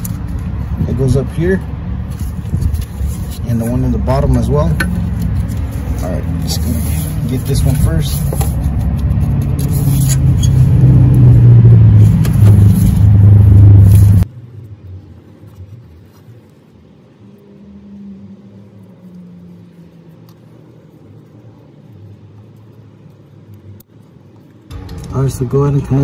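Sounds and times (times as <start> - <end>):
loud low rumble: 0.1 - 15.3, 24.7 - 26.0
faint low hum: 12.6 - 26.0.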